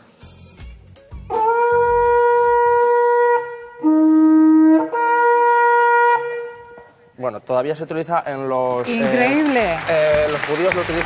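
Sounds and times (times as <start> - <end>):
horn trumpet notes: 1.3 - 7.2.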